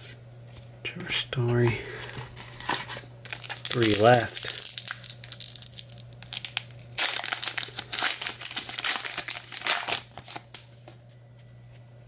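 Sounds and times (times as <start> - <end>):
wrapper tearing and crinkling: 2.3 - 10.8.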